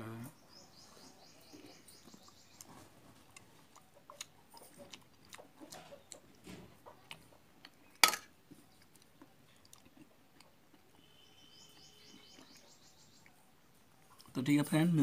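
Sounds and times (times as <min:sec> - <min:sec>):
person chewing wetly: 0:02.1 - 0:11.2.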